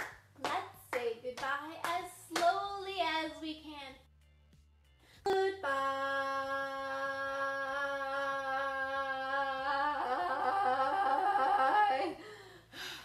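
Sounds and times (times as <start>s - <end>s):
woman singing: 5.3s - 12.2s.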